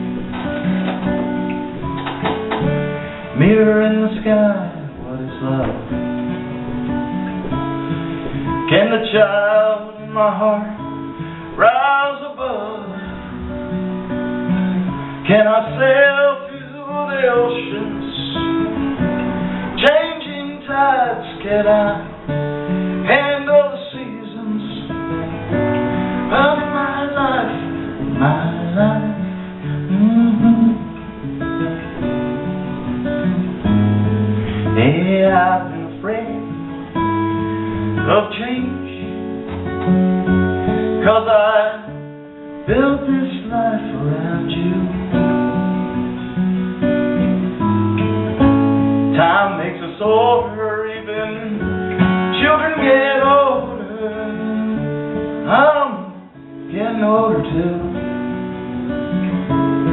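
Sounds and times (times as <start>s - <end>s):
acoustic guitar accompaniment: 0.0s - 59.9s
man singing into a microphone: 3.3s - 6.2s, 8.5s - 13.4s, 15.0s - 18.8s, 19.7s - 31.1s, 34.6s - 36.6s, 37.8s - 39.4s, 41.0s - 45.6s, 49.1s - 58.4s.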